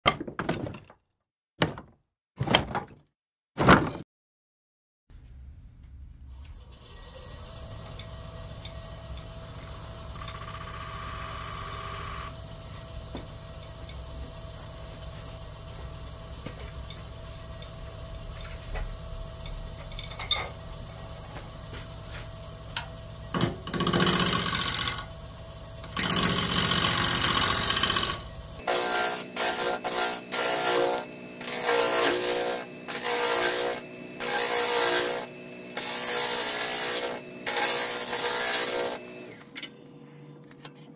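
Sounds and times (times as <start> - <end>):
lathe motor hum: 6.5 - 39.4
turning tool scraping wood: 25.8 - 39.2.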